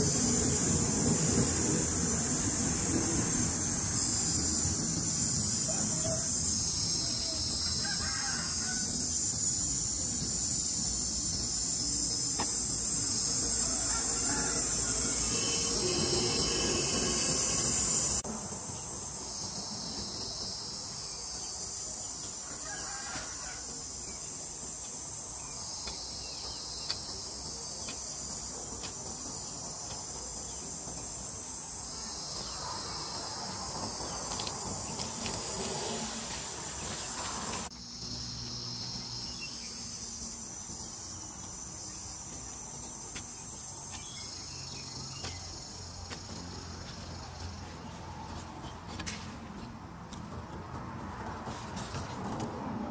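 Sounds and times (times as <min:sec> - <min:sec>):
insects chirring: 0:00.0 - 0:52.9.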